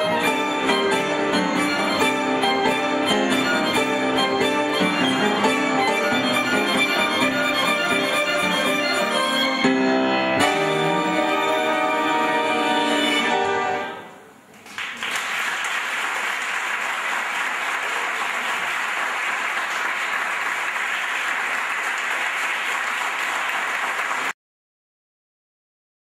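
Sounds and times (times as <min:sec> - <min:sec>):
audience applause: 0:14.5 - 0:24.4.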